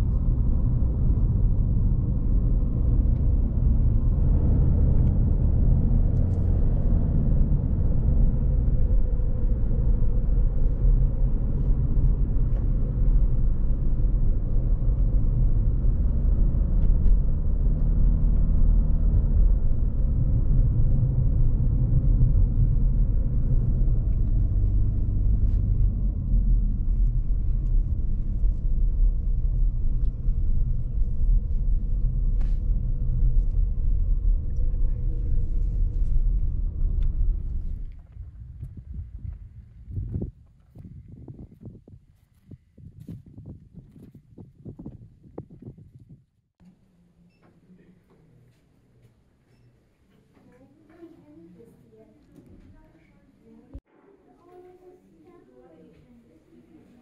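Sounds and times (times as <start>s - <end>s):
car cabin road rumble: 0.0s - 42.0s.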